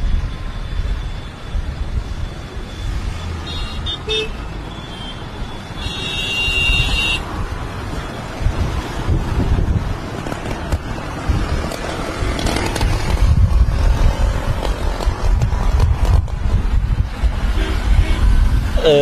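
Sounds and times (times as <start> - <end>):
road traffic rumble: 0.0 - 19.0
car horn: 3.4 - 7.3, 17.5 - 18.4.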